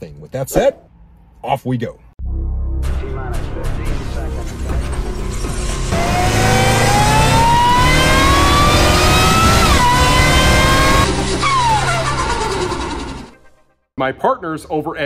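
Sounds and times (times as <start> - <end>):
car engine accelerating hard: 5.2 - 13.5.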